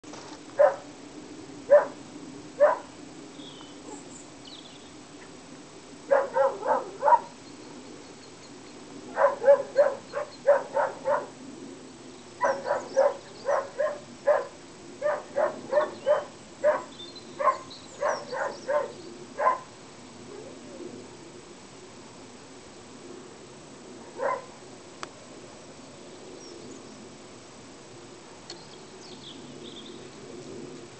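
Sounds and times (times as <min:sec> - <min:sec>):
dog barking: 0:00.6 - 0:00.9, 0:01.7 - 0:02.0, 0:02.6 - 0:02.9, 0:06.1 - 0:07.3, 0:09.1 - 0:11.3, 0:12.4 - 0:19.7, 0:24.2 - 0:24.5.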